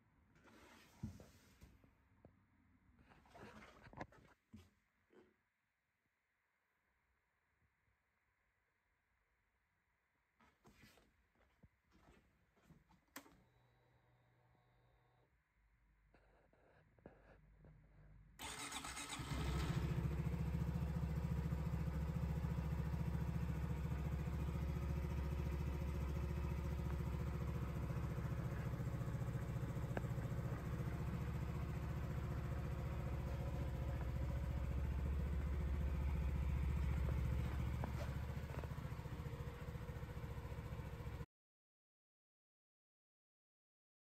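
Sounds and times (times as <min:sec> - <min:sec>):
motorcycle engine starting and idling: 0:18.4 - 0:41.2.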